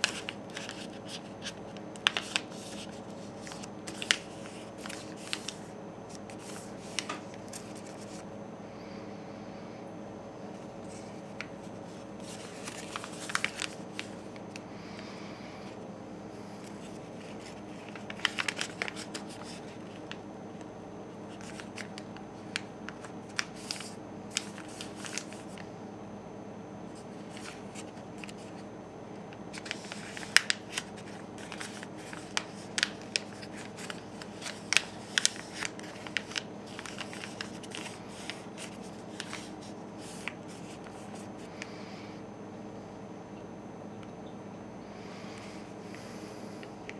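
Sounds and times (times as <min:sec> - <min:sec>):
paper crinkling and rustling: 0:00.0 - 0:08.3, 0:10.6 - 0:14.6, 0:16.6 - 0:20.2, 0:21.3 - 0:25.7, 0:27.0 - 0:28.6, 0:29.5 - 0:41.5.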